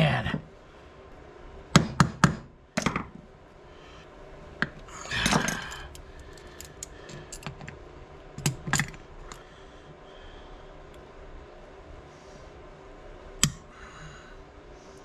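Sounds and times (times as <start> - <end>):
metal tools clicking and scraping: 5.1 - 7.6.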